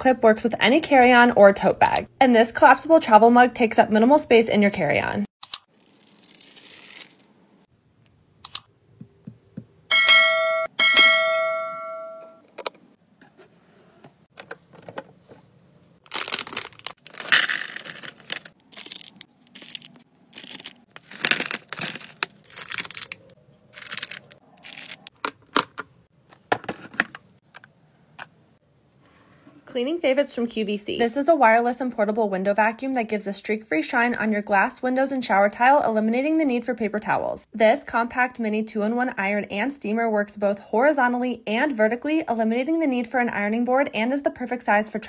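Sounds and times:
electronic chime: 0:09.9 - 0:12.4
plastic containers and candies rustling: 0:14.4 - 0:28.3.

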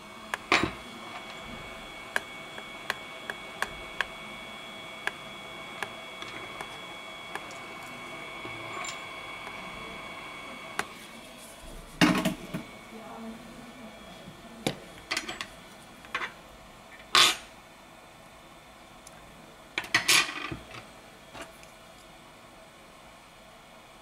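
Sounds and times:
faint high whine: 0:00.0 - 0:15.8.

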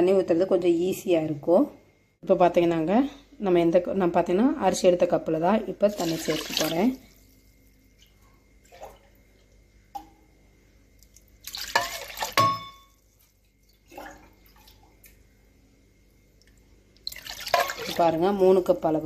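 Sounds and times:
water splashing into pot: 0:05.9 - 0:10.2, 0:11.0 - 0:15.2, 0:16.4 - 0:18.4.

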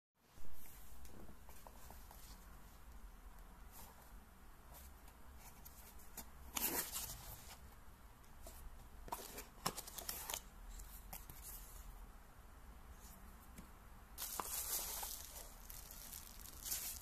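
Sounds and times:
cardboard scraping and rustling: 0:14.2 - 0:17.0
paper rustling: 0:14.2 - 0:17.0.

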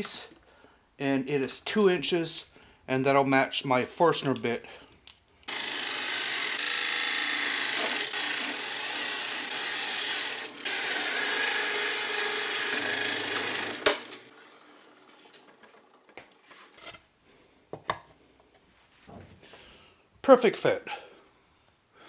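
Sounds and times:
drill press boring wood: 0:05.5 - 0:15.1.

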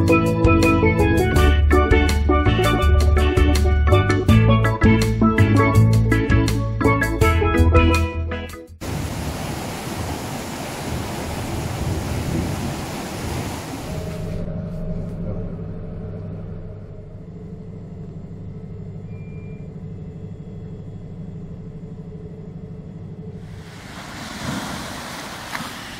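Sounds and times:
rushing wind and churned water: 0:08.8 - 0:14.2, 0:23.5 - 0:25.9
boat engine droning: 0:08.8 - 0:25.9.

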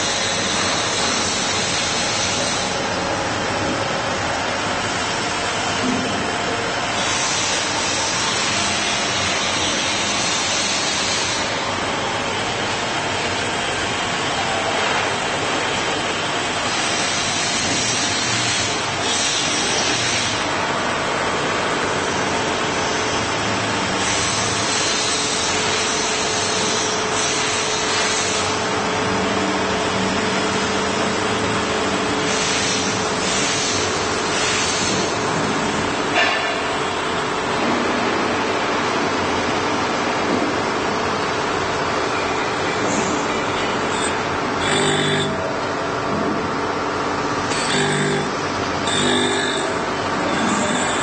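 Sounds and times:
knife grinder running: 0:43.0 - 0:45.7, 0:47.4 - 0:51.0.

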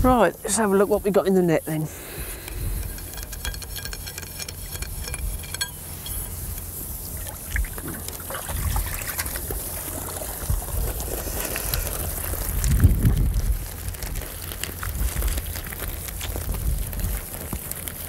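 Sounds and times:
water trickling and dripping: 0:04.1 - 0:12.3.

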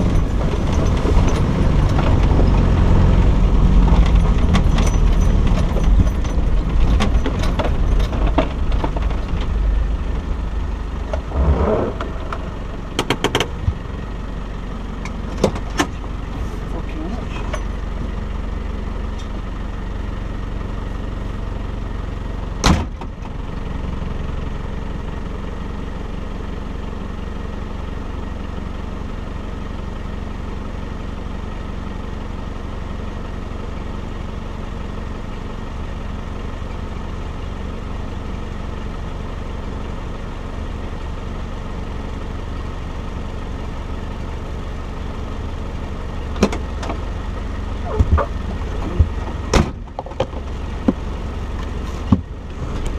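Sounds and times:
vehicle engine idling: 0:00.0 - 0:52.9.

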